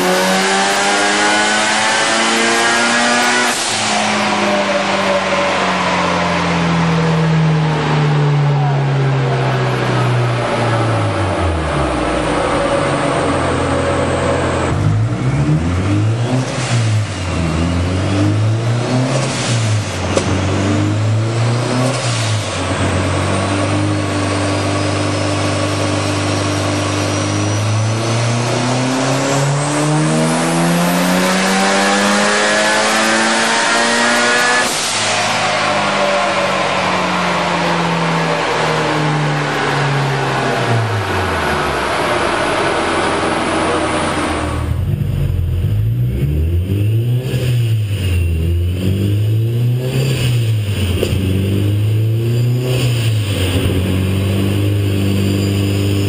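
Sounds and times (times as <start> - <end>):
turbocharged car engine revving: 0.0 - 56.0.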